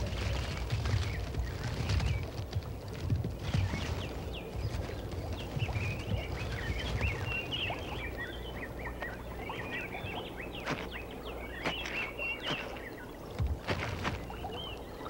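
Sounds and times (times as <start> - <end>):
steady low rumble: 0.0 - 15.0
high chirping calls: 5.4 - 15.0.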